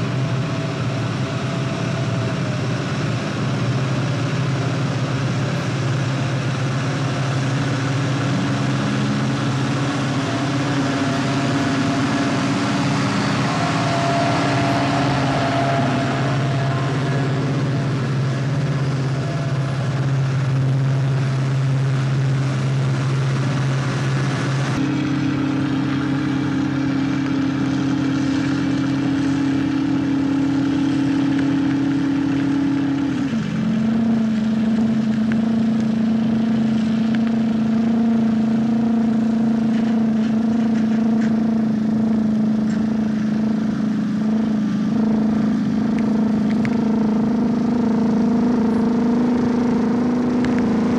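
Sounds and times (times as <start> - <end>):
heavy diesel truck engine droning: 0.0 - 50.9.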